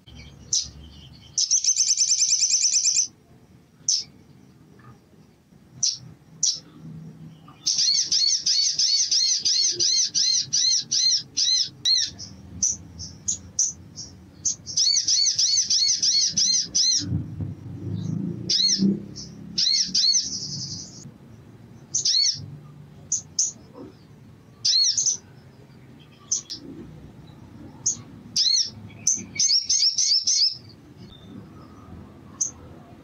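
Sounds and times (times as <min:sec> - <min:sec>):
buzzy bird trill: 0:00.0 - 0:03.2, 0:05.8 - 0:06.7, 0:07.4 - 0:17.1, 0:18.0 - 0:21.1, 0:21.9 - 0:22.5, 0:27.8 - 0:31.3
bird chirping: 0:00.0 - 0:33.0
low rumble: 0:16.5 - 0:21.6.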